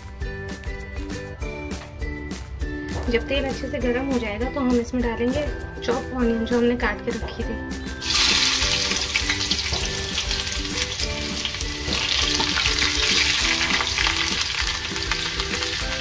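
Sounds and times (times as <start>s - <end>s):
onion sizzling in hot oil: 7.9s - 16.0s.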